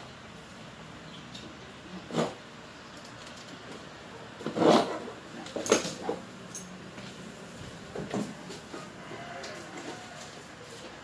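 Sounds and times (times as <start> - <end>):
wire scraping and rustling: 4.4 - 11.0.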